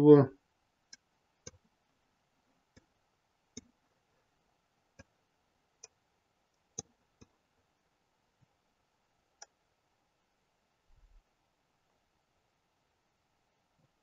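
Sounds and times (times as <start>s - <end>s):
faint mouse clicks: 5.8s - 7.4s.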